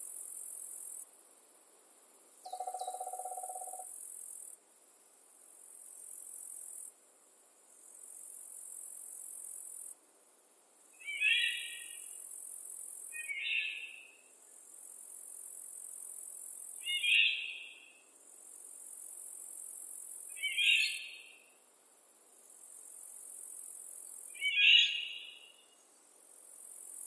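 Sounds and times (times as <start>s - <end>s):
songbird singing: 2.4s - 3.9s, 11.0s - 12.2s, 13.0s - 14.3s, 16.7s - 18.0s, 20.3s - 21.4s, 24.1s - 26.2s.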